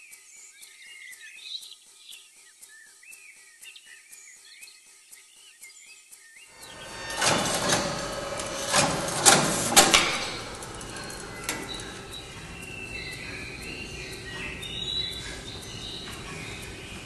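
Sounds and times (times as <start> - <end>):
card printer clacking: 6.6 - 17.0
low steady hum: 6.6 - 17.0.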